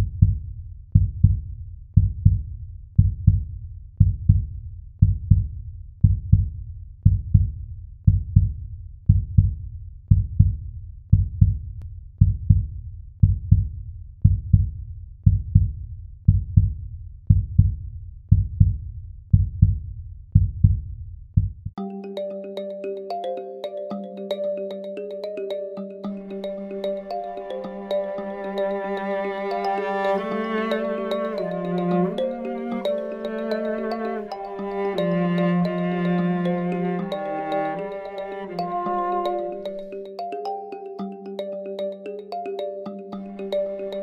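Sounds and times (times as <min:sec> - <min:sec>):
heartbeat thumps: 0:00.0 - 0:21.8.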